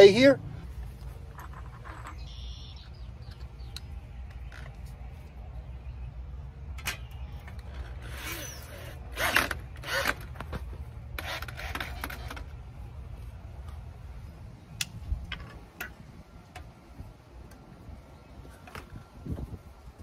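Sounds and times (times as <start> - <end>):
low steady rumble: 0.0 - 20.0
scraping and rubbing: 0.7 - 2.3
sharp clicks: 2.1 - 4.9.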